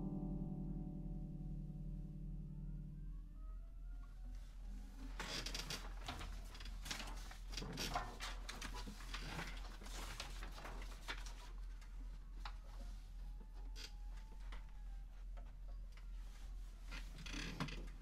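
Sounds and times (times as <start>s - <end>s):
paper pages rustling: 5.2s - 12.6s.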